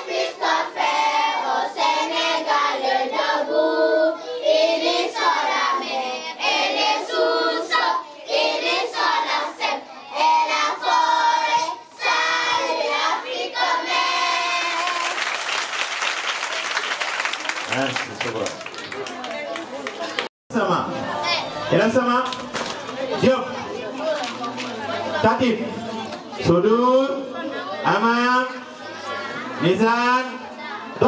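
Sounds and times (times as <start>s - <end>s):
children singing in chorus: 0.0s - 15.2s
applause: 14.2s - 20.3s.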